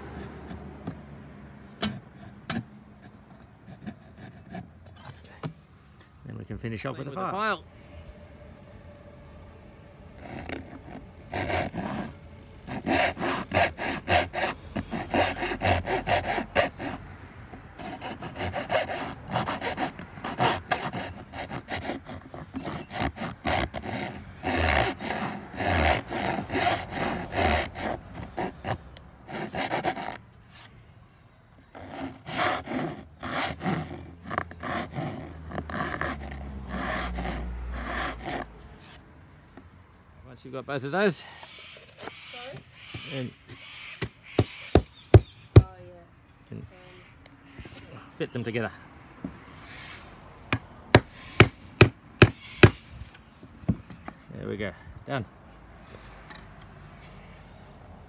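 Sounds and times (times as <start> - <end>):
metal file rasping in wood: 10.2 - 30.7, 31.7 - 38.6, 50.5 - 52.8.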